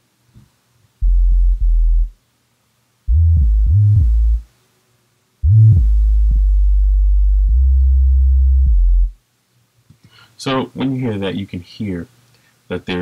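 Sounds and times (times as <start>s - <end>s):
sine sub-bass notes: 1.0s - 2.2s, 3.1s - 4.4s, 5.4s - 9.2s.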